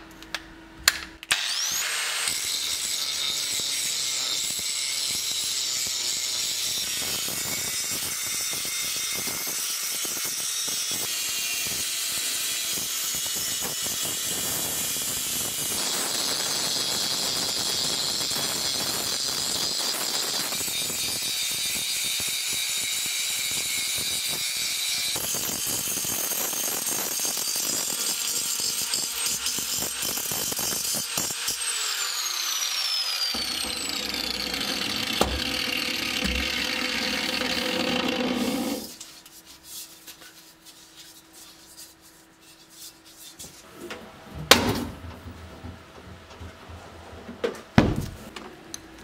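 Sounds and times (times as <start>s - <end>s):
angle grinder grinding metal: 1.3s - 39.0s.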